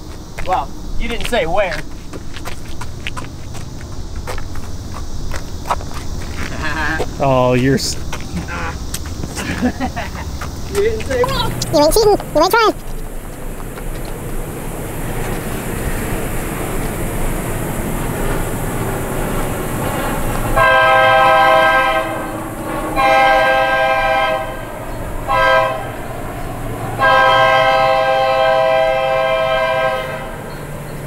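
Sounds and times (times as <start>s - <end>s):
train rumbling: 0.0s - 31.0s
locomotive air horn blasts: 20.6s - 26.0s, 27.0s - 30.4s.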